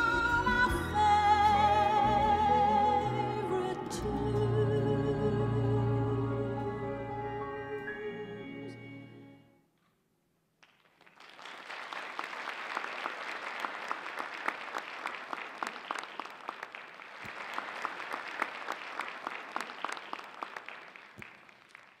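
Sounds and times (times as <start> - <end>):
audience applauding: 10.6 - 22.0.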